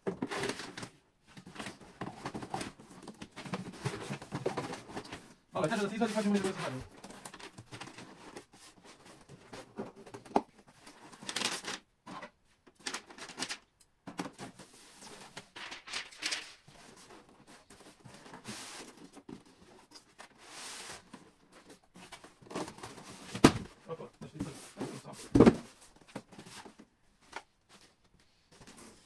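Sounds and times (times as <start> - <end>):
cardboard and foam rustling: 0.0 - 29.0.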